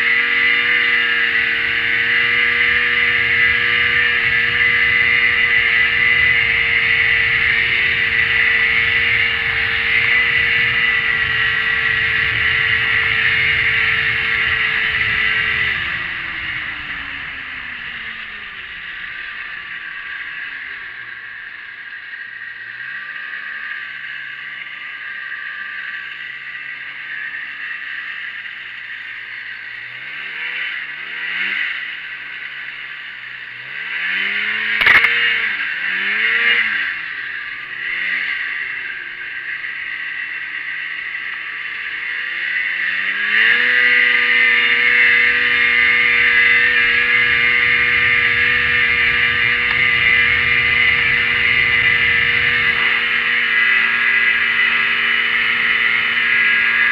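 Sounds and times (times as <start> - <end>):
snowmobile engine revving: 0.0 - 56.9
sharp knock: 34.8 - 35.1.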